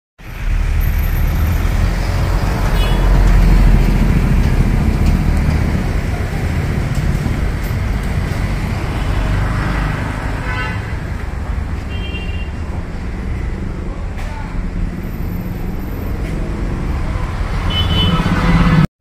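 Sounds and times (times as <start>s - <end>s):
loud low outdoor rumbling: 0.2s - 11.8s.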